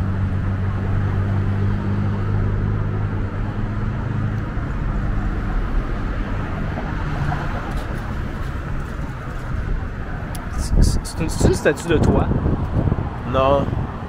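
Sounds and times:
street traffic engine hum: 0.0 - 14.0.

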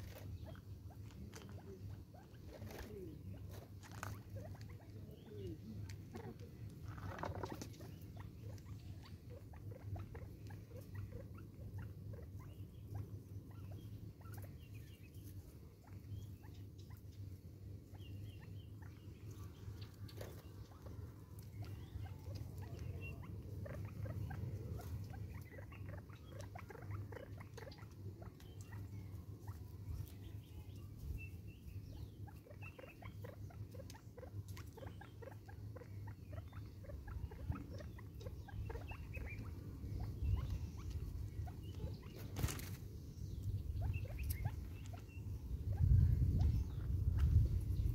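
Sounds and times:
wind rumble on microphone: 37.1 - 47.9.

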